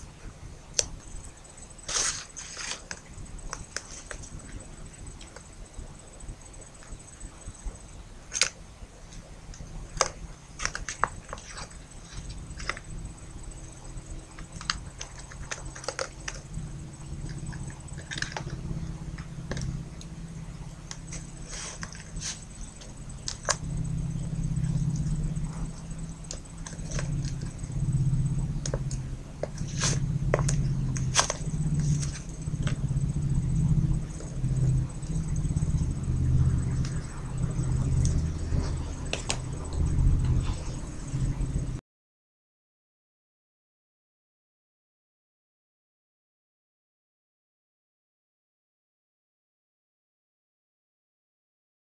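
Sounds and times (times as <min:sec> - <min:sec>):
faint high whine: 0:00.0 - 0:41.8
low rumble: 0:00.0 - 0:41.8
paper magazine sliding: 0:01.8 - 0:03.0, 0:21.0 - 0:23.6, 0:29.5 - 0:32.3
paper model clicking and crinkling: 0:09.5 - 0:12.9, 0:14.3 - 0:16.5, 0:17.2 - 0:18.6, 0:28.6 - 0:32.8.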